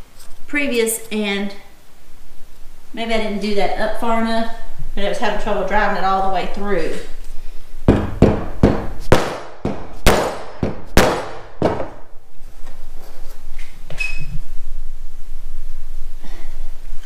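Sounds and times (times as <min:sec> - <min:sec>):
mallet striking wooden pegs: 0:07.9 - 0:12.0.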